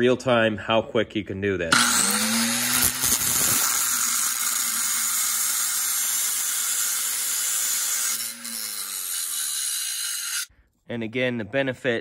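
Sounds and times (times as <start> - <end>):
angle grinder cutting metal: 1.7 - 10.5.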